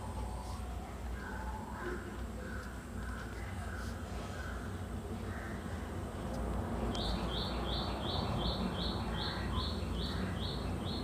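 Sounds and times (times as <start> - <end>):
steady low hum: 0.0 - 11.0
bird chirping: 6.8 - 11.0.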